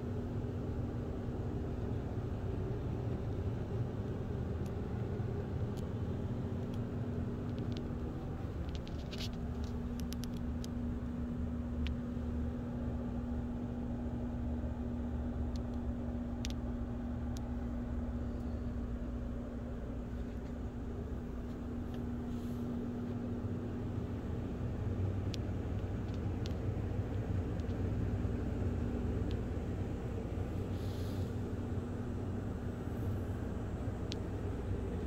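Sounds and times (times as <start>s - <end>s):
motor rumbling and humming: 0.0s - 35.0s
light clicks and taps: 4.6s - 11.2s, 15.4s - 16.7s, 25.2s - 27.9s.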